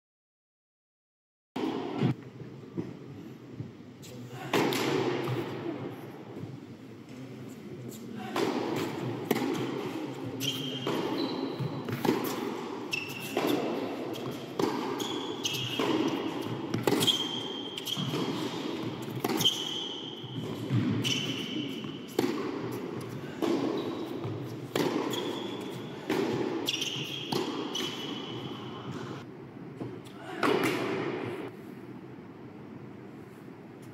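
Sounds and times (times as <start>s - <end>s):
racket hitting tennis ball: 1.6s - 2.2s, 4.5s - 5.6s, 8.2s - 29.2s, 29.8s - 31.4s
shoes squeaking on court: 9.5s - 29.2s
ball bouncing: 13.2s - 19.6s.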